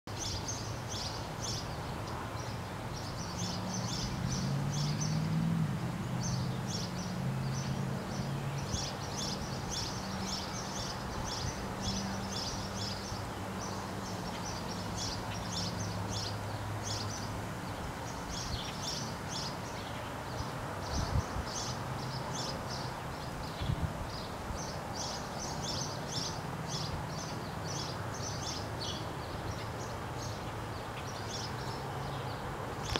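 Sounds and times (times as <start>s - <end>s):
sparrows chirping: 0.1s - 5.4s, 6.0s - 32.9s.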